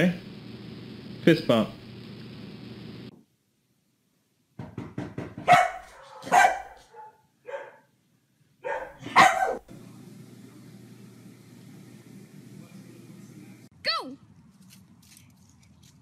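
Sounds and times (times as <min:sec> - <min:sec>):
dog barking: 0:05.4 - 0:07.9, 0:08.6 - 0:09.7.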